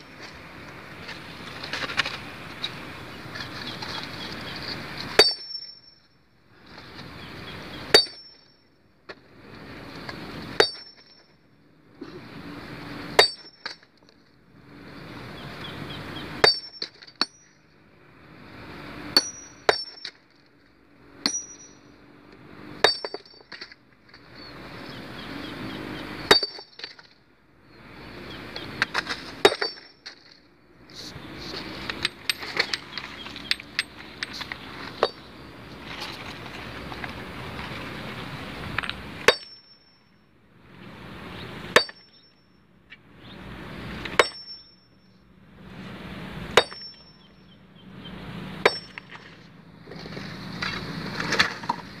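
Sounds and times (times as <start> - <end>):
sledgehammer striking stone: 5.2 - 5.8, 7.9 - 8.4, 10.6 - 11.3, 13.2 - 13.8, 16.4 - 17.5, 19.2 - 20.2, 21.2 - 21.7, 22.8 - 23.6, 26.3 - 27.0, 29.4 - 30.0, 39.2 - 39.8, 41.7 - 42.2, 44.1 - 44.7, 46.6 - 47.1, 48.6 - 49.1.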